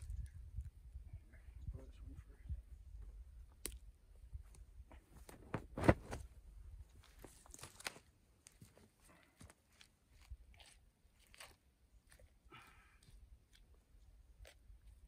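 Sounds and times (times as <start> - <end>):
bag rustling: 5.2 - 6.2
sharp crunch: 5.2 - 6.2
crunches in dry brush: 7.0 - 12.2.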